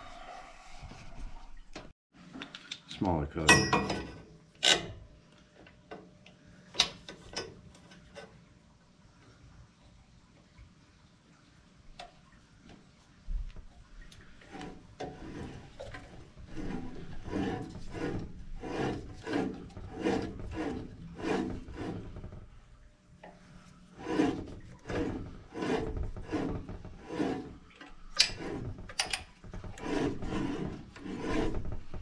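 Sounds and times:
tubing cutter scoring copper pipe: 14.4s - 22.4s, 23.9s - 32.0s.

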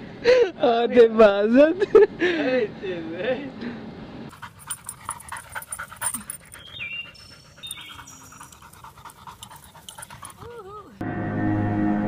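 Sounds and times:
dog panting: 4.3s - 11.0s.

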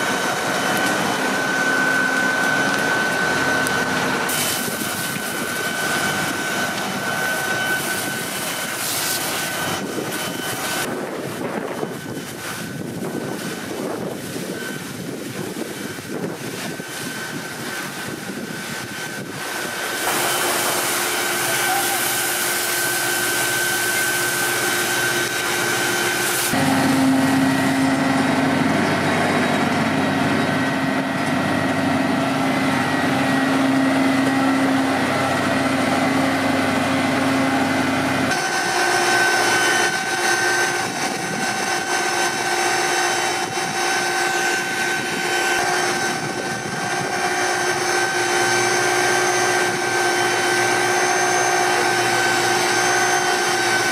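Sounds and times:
engine and water pump droning: 0.0s - 53.9s
water hissing from hose: 0.1s - 27.8s.

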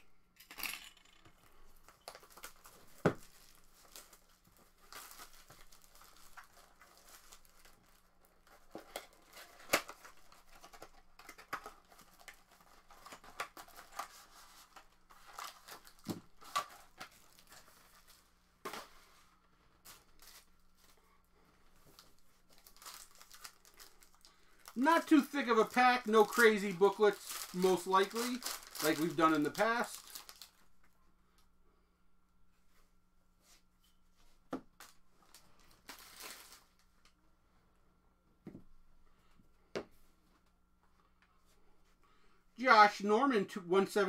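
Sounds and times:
wrappers tearing and crinkling: 1.8s - 18.9s, 19.8s - 21.0s, 22.0s - 30.6s, 34.8s - 36.9s.

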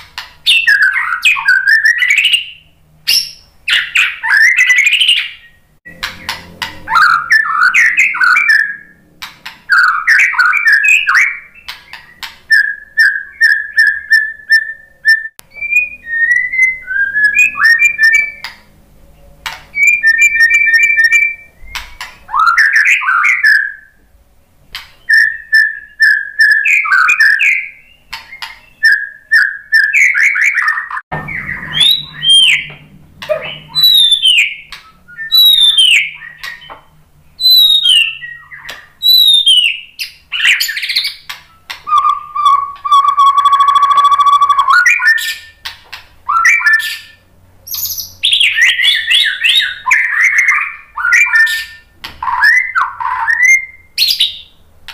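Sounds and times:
songbird singing varied song: 19.7s - 24.0s, 25.0s - 36.8s, 37.4s - 45.6s, 46.3s - 54.6s.

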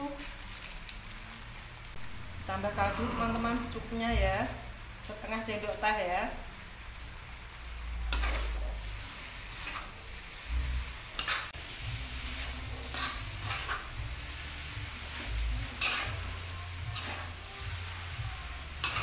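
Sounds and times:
noodles sizzling in a wok: 0.0s - 19.0s.

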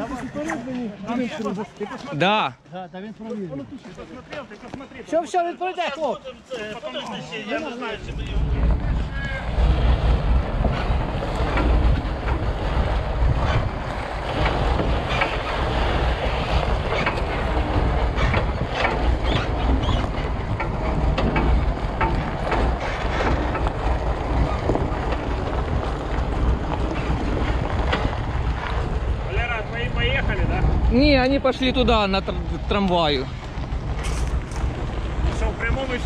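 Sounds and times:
wind buffeting microphone: 7.5s - 36.0s.

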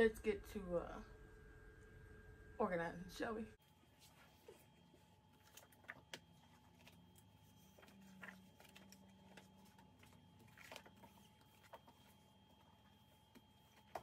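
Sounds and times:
paper rustling: 3.8s - 14.0s.

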